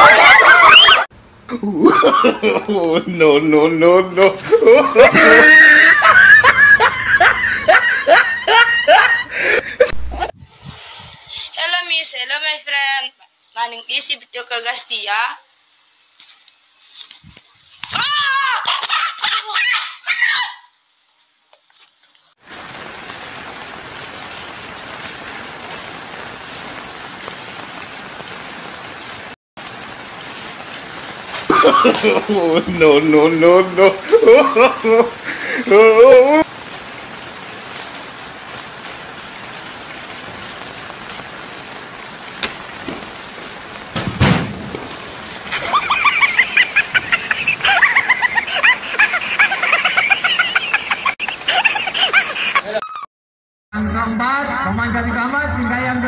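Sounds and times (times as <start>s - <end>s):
heavy rain: 0.0s - 10.5s, 22.4s - 52.8s
water streaming onto concrete: 1.9s - 10.0s, 22.3s - 52.8s.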